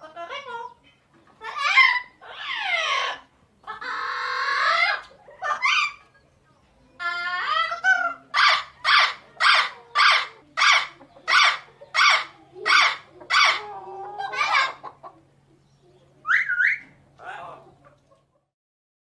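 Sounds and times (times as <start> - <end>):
parrot squawking and calling: 1.4 - 6.2, 7.0 - 15.1, 16.2 - 17.7
parrot rising whistles: 16.2 - 16.9.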